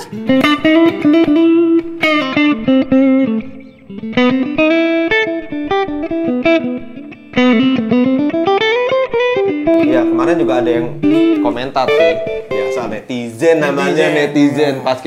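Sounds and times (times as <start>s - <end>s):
clean electric guitar melody: 0.0s - 14.4s.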